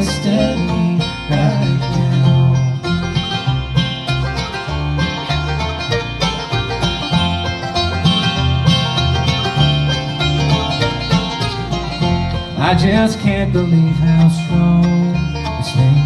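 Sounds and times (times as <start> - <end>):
bluegrass band playing: 0.0 - 16.0.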